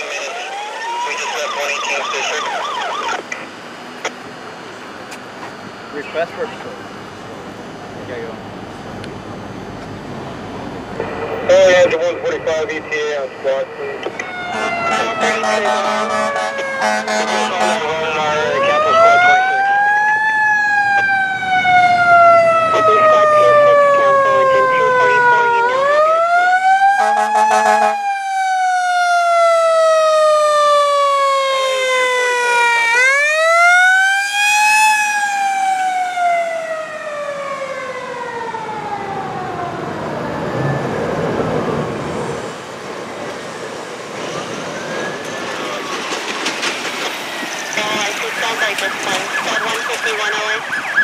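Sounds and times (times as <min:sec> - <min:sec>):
distant siren: 0:00.0 - 0:07.8, 0:09.5 - 0:51.0
fire engine siren wailing: 0:00.0 - 0:08.8, 0:09.4 - 0:51.0
horn blast: 0:14.5 - 0:18.6.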